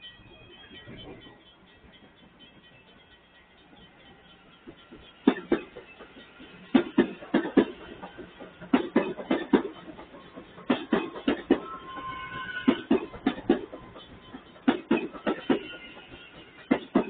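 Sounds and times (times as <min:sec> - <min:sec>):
train wheels clacking over rail joints: 0:04.7 - 0:17.0.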